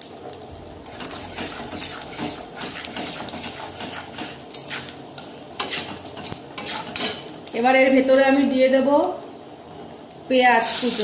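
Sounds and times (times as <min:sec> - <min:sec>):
spices sizzling in hot oil: 0:00.0 - 0:11.0
metal spatula scraping pan: 0:00.8 - 0:07.3.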